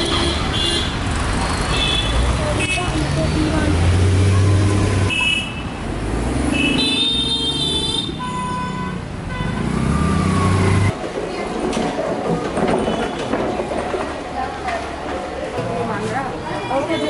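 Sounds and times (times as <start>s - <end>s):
busy road traffic: 0.0s - 17.0s
car horns honking: 4.2s - 5.8s, 6.5s - 10.0s.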